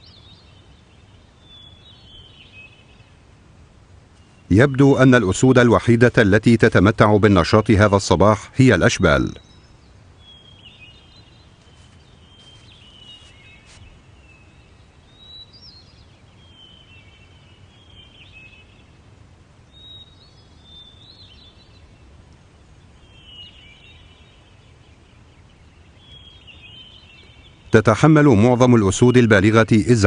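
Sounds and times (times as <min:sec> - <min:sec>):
birds chirping: 0:00.0 - 0:30.0.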